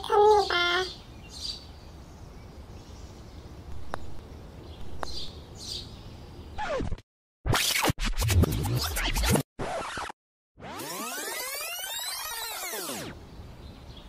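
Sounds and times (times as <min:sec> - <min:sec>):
birds chirping: 0:00.0 - 0:06.7, 0:13.1 - 0:14.0
loud scratchy music: 0:07.5 - 0:10.1
falling whine: 0:10.6 - 0:13.2.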